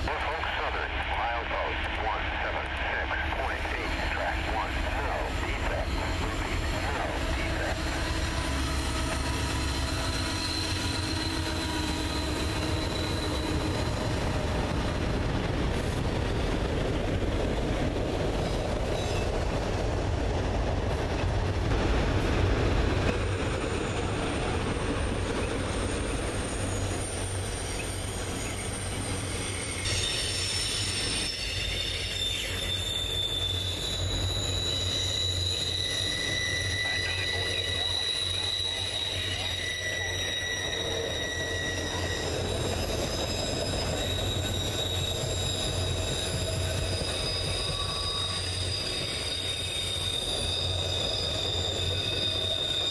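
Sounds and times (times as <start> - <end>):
steel wheels rumbling on rail: 1.0 - 52.9
wheel flange squeal: 5.7 - 14.2, 25.4 - 52.9.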